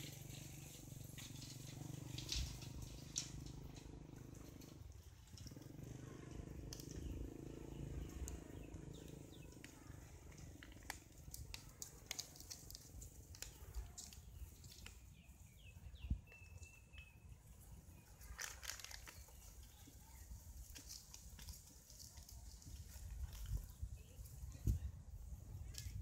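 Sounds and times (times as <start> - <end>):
small clicks: 0.0 - 15.2, 18.1 - 23.6.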